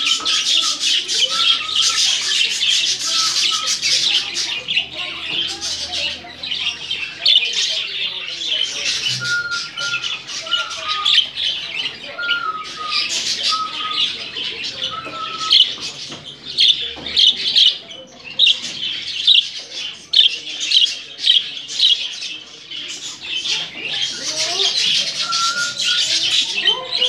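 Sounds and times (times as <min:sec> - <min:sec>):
budgerigars chattering and squawking: 0:00.0 - 0:27.0
whistled notes: 0:09.0 - 0:10.9.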